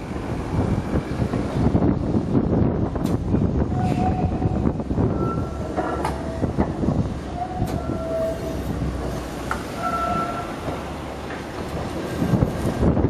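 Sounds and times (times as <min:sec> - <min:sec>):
tram rumbling along track: 0:00.0 - 0:13.0
clicks over the rails: 0:10.6 - 0:12.9.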